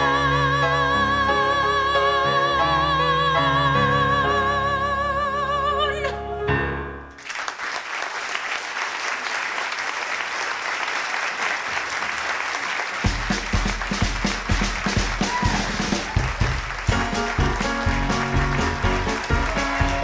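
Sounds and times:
woman singing with vibrato: 0:00.0 - 0:06.7
audience applause: 0:07.2 - 0:20.0.

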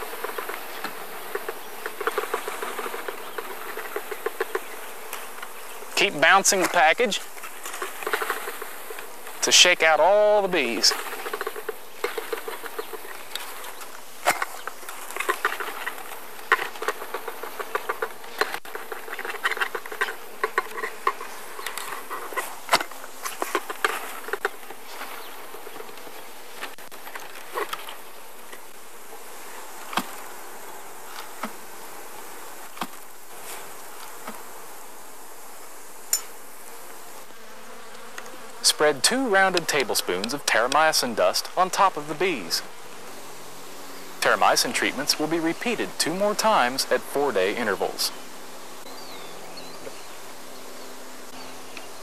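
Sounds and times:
bees buzzing: 0:00.0 - 0:52.0.

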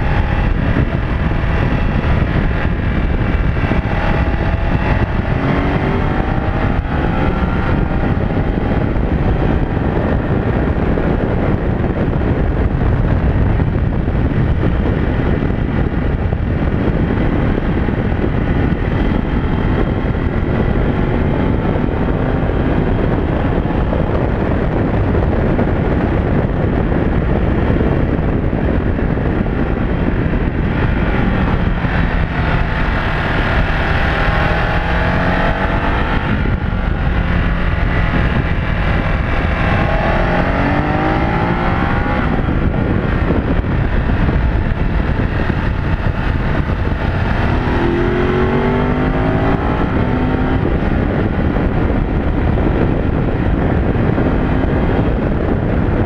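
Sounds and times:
motorcycle engine running: 0:00.0 - 0:56.0
wind rush on microphone: 0:00.0 - 0:56.0.

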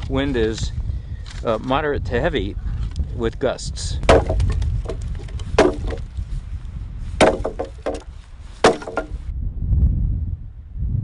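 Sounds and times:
wind rumble on microphone: 0:00.0 - 0:11.0
wood splintering crackle: 0:04.0 - 0:06.4, 0:07.2 - 0:09.2
axe chopping log: 0:04.1 - 0:06.1, 0:07.2 - 0:09.2.

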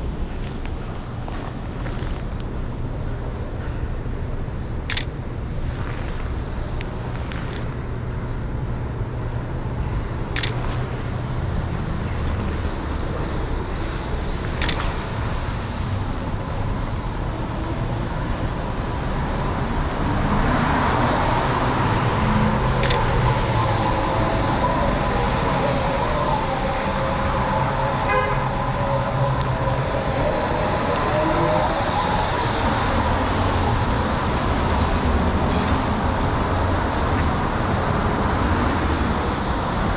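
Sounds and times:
street traffic: 0:00.0 - 0:39.9
vehicle engine hum: 0:00.0 - 0:39.9
camera shutter clicks: 0:04.9 - 0:07.8, 0:10.4 - 0:11.0, 0:14.4 - 0:15.1, 0:22.8 - 0:23.1.

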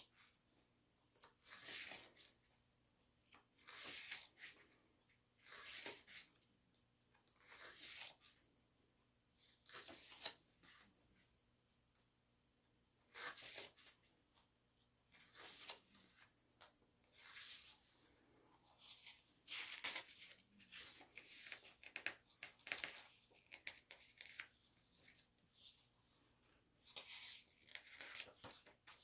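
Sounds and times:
stiff pages rustling and flapping: 0:26.7 - 0:29.0.

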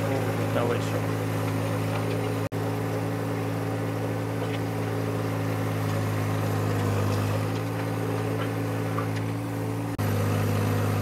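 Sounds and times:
tractor diesel engine running: 0:00.0 - 0:11.0
gravel scraping and crunching: 0:03.9 - 0:09.5.

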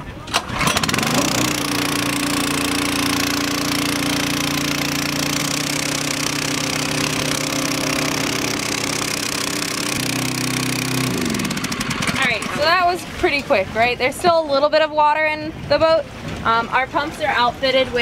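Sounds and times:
small pump engine running: 0:00.3 - 0:12.9.

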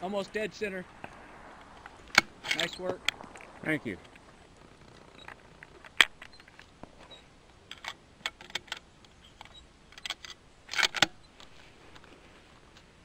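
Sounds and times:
sharp metallic rifle bolt click: 0:07.7 - 0:11.5.

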